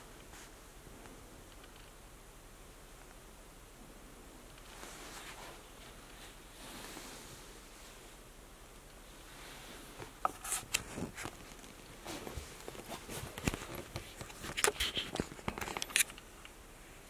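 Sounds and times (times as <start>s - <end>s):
jackets on hangers rustling: 4.7s - 8.1s, 9.2s - 16.4s.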